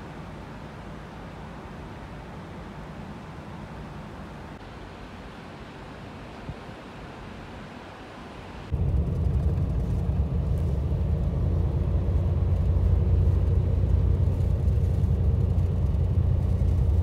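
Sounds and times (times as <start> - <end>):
coach engine rumble: 8.7 - 17.0.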